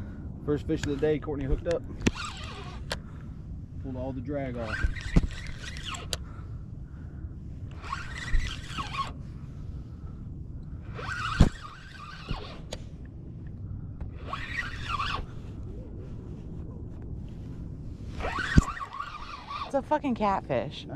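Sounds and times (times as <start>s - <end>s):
wind rumble on microphone: 0.0s - 20.9s
spinning reel cranking: 0.9s - 3.0s, 4.5s - 6.2s, 7.7s - 9.2s, 10.9s - 12.8s, 14.2s - 15.3s, 18.2s - 19.8s.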